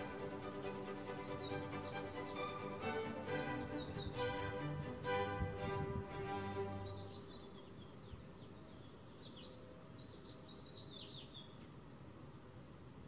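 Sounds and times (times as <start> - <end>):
low background noise: 0.0 - 13.0
finches chirping: 0.5 - 2.8, 6.6 - 11.6.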